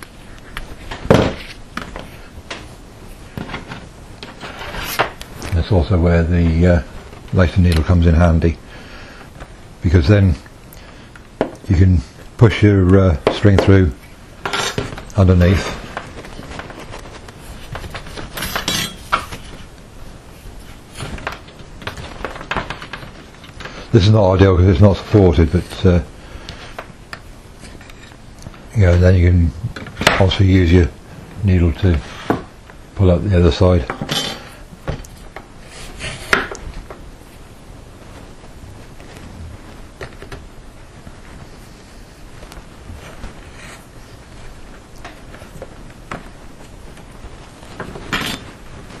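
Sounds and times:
needle and twine rustling and clicking: 12.3 - 29.2
hands rubbing cable bundle: 14.6 - 18.6, 35.2 - 49.0.

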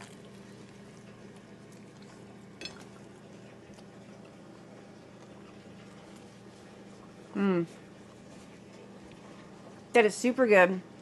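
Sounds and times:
person chewing: 0.0 - 3.0
steady low hum: 0.0 - 11.0.

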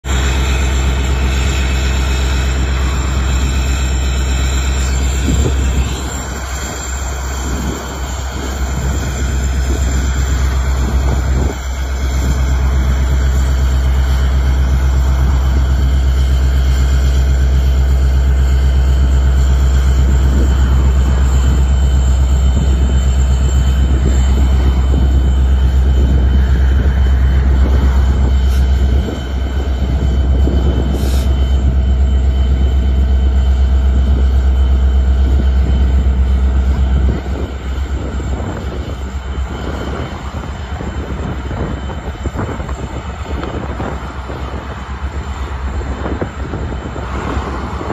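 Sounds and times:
diesel locomotive engine drone: 0.0 - 47.9.

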